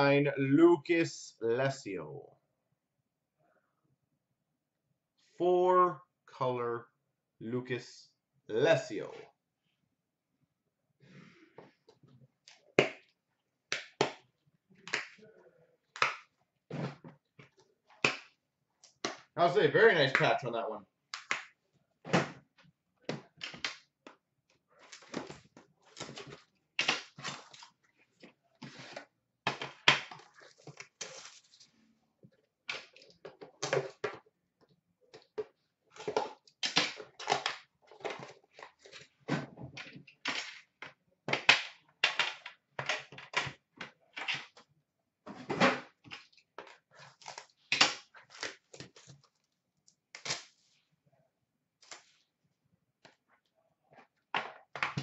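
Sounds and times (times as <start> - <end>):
hands handling card packaging: 28.6 - 31.7, 46.0 - 49.5.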